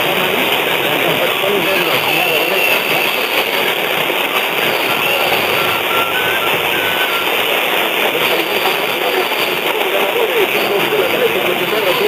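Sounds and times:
radio static and hiss: 0.0s - 12.0s
faint short tones: 4.4s - 8.9s.

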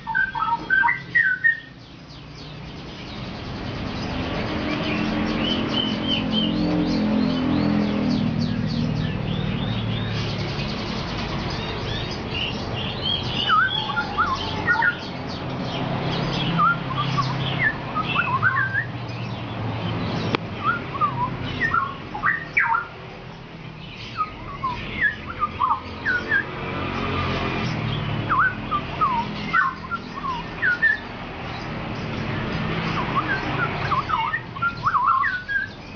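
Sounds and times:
bird singing whistled notes: 0.0s - 23.0s, 23.8s - 26.7s, 27.7s - 35.9s.

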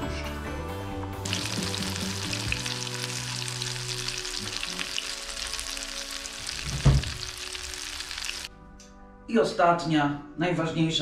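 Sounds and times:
cutlets frying in oil: 1.2s - 8.5s
low thump: 6.6s - 7.3s.

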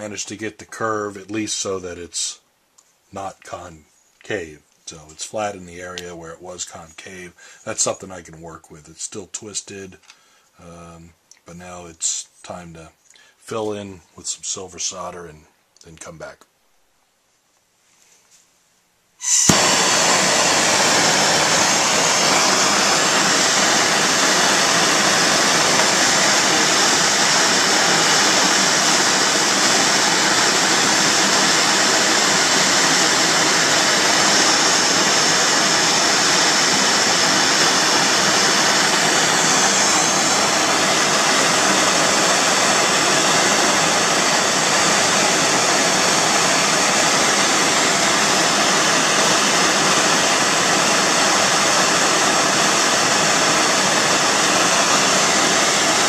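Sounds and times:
gas torch flame hissing: 19.2s - 56.0s.

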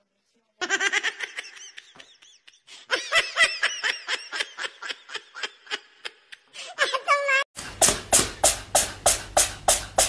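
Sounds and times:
person laughing: 0.6s - 7.4s.

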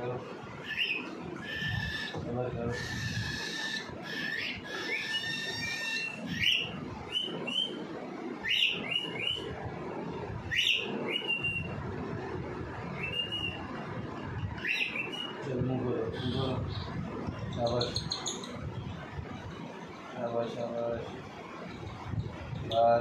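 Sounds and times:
bird chick calling: 0.6s - 7.8s.

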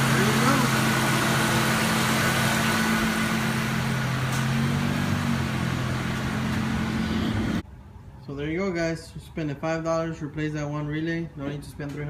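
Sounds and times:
car engine idling: 0.0s - 7.6s.

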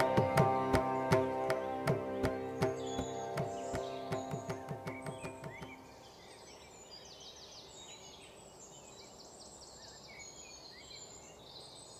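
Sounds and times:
music with drums: 0.0s - 5.8s
birds chirping and trilling: 0.0s - 11.9s.

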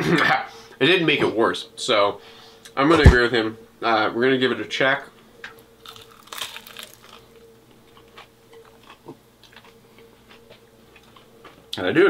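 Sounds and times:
person chewing: 5.8s - 11.8s.

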